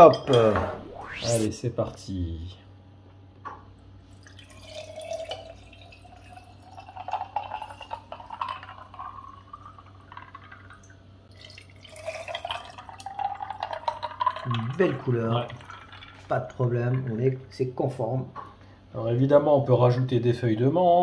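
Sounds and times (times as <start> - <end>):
tea pouring over ice into glass: 4.1 - 17.6.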